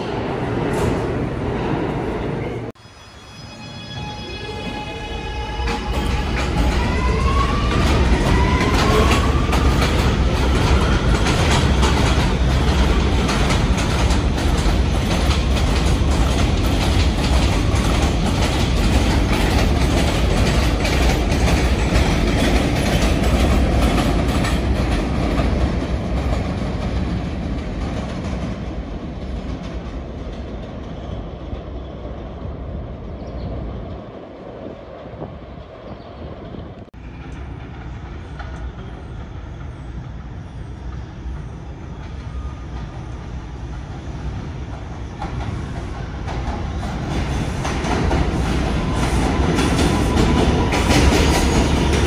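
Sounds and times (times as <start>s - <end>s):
wheels clattering on rails: 7.7s - 31.0s, 44.7s - 52.0s.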